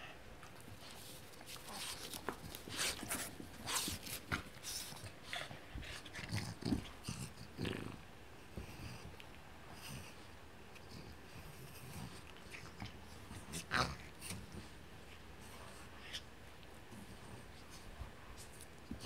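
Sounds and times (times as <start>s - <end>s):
dog scuffling with toy: 0.7s - 6.9s
dog growling: 4.9s - 9.1s, 10.8s - 14.6s.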